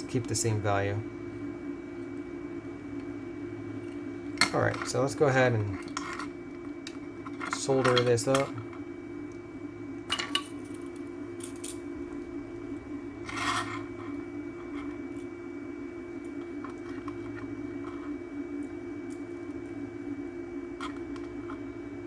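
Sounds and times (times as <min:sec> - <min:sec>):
steady low hum: 0:00.0 - 0:22.0
tool scraping: 0:13.3 - 0:15.2, 0:16.4 - 0:18.2.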